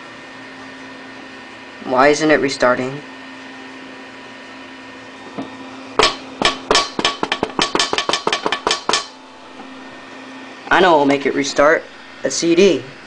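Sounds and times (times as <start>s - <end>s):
steady hum: 0.0s - 13.0s
fist knocking on laptop screen: 6.0s - 9.1s.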